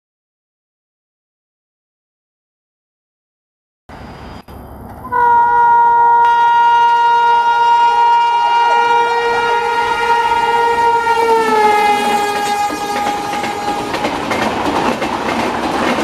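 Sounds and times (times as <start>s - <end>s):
locomotive horn blast: 5.0s - 14.2s.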